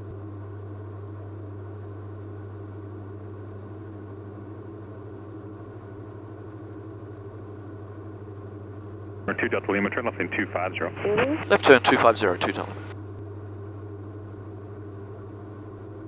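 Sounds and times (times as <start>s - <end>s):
aircraft engines droning: 9.2s - 12.9s.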